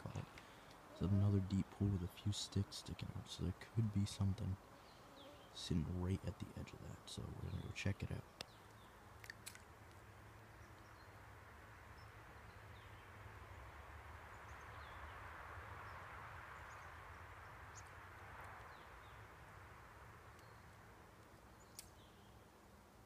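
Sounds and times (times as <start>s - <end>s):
soft outdoor hiss: 0.0s - 23.0s
faint bird chirps: 4.7s - 5.8s.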